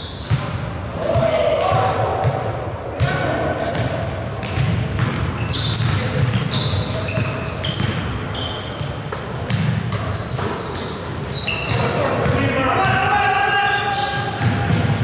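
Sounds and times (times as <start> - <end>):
basketball bouncing: 0.2 - 10.7, 14.2 - 15.0
shoes squeaking on hardwood floor: 3.8 - 12.2.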